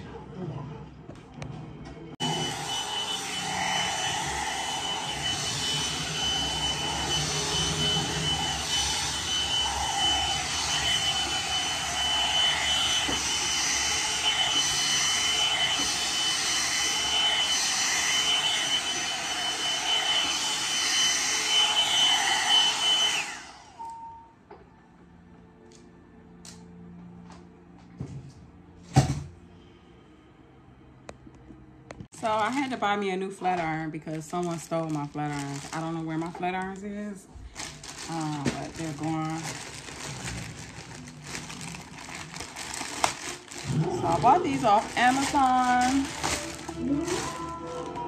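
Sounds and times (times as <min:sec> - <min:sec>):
hair dryer brush fan whine: 0:02.2 - 0:24.6, 0:32.1 - 0:48.0.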